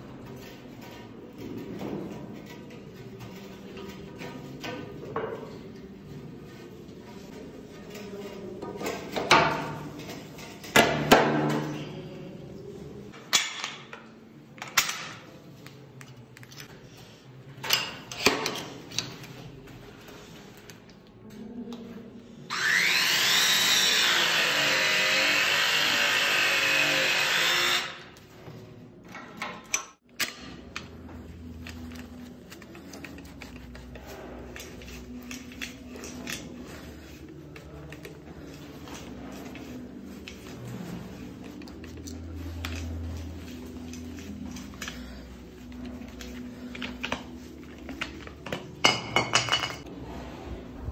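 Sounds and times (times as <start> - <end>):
press tool motor whine: 22.5 - 28.0.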